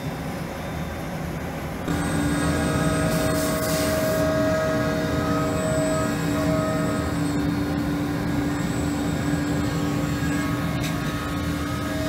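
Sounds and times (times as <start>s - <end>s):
machining spindle humming and whining: 0.0s - 12.0s.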